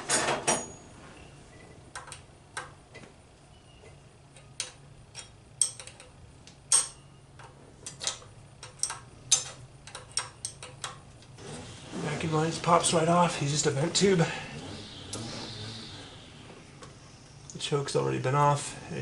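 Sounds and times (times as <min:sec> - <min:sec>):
wrench clicking on metal: 0:04.4 - 0:06.1, 0:07.9 - 0:11.0.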